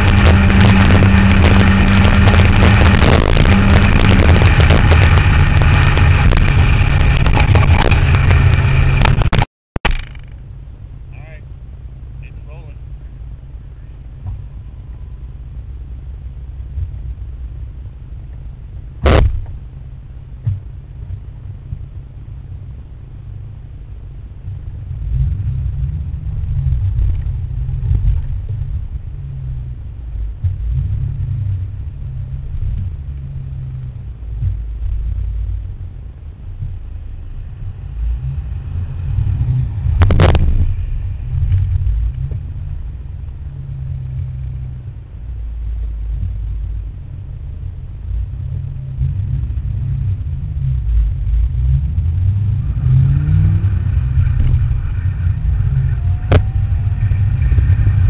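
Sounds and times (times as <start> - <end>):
car engine cabin rumble: 0.0 - 58.0
tyres on road: 0.0 - 58.0
sharp knock: 19.0 - 19.5.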